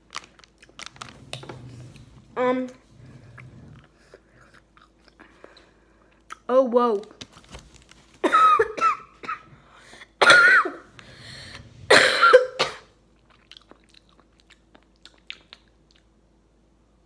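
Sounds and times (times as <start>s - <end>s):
boy coughing: 8.2s - 9.5s, 10.1s - 10.9s, 11.9s - 12.9s
chewing mouth clicks: 13.2s - 16.1s.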